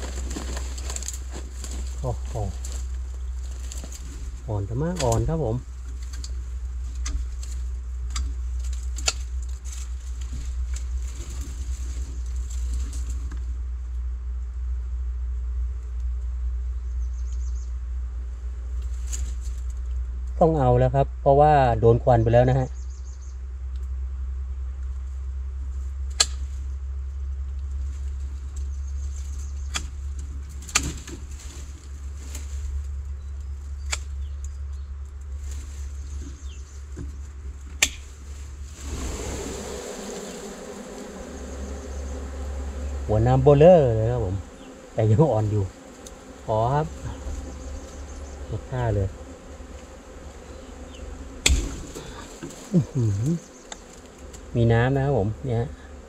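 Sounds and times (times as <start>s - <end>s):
twigs snapping: 0.0s - 13.4s, 26.1s - 26.6s, 27.6s - 39.0s, 50.9s - 54.5s
leafy branches rustling: 0.0s - 13.8s, 18.2s - 20.1s, 25.0s - 56.0s
steady low rumble: 0.0s - 53.5s.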